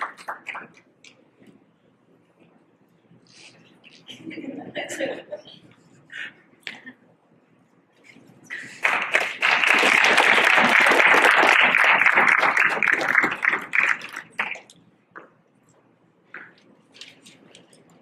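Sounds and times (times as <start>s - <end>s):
audience applauding: 8.5s - 14.6s.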